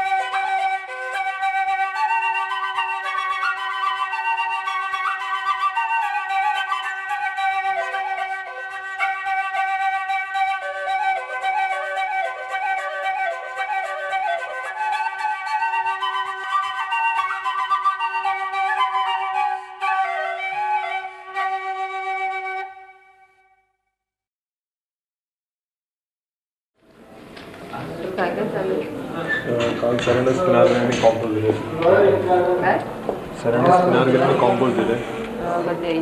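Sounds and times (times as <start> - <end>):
flute melody: 0.0 - 23.8.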